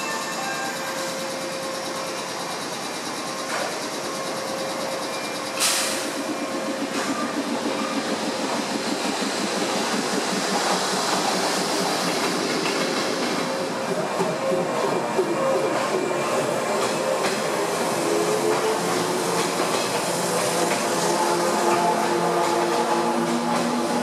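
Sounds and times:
train motor and wheel noise: 0:00.0 - 0:24.0
compressed-air hiss: 0:05.6 - 0:06.3.

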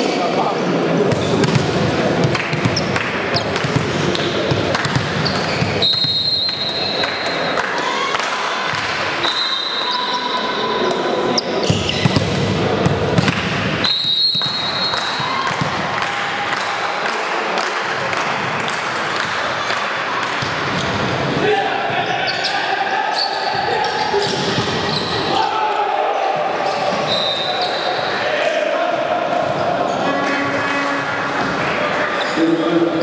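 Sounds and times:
players' voices: 0:00.0 - 0:33.0
ball bouncing on gym floor: 0:01.1 - 0:06.3, 0:11.6 - 0:13.6.

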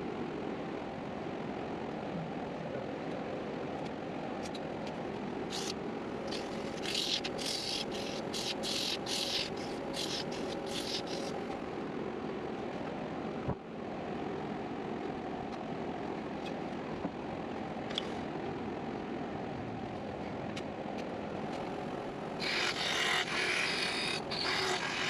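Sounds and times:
sandpaper hissing on spinning wood: 0:06.3 - 0:11.4, 0:22.4 - 0:25.0
wood lathe motor hum: 0:22.4 - 0:25.0.

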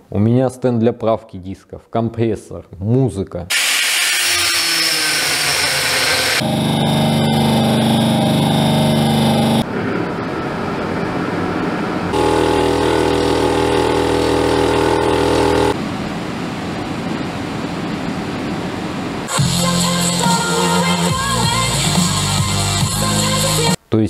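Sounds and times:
piston air compressor running: 0:03.5 - 0:09.6, 0:12.2 - 0:15.8
motor humming: 0:04.2 - 0:09.6, 0:12.2 - 0:15.8.

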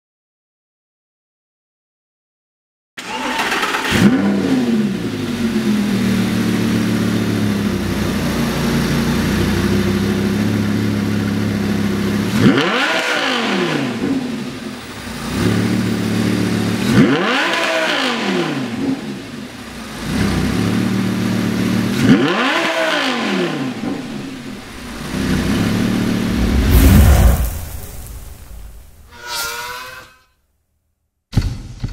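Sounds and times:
sports car engine idling and revving: 0:03.8 - 0:26.7
whoosh sound effect: 0:23.8 - 0:29.5.

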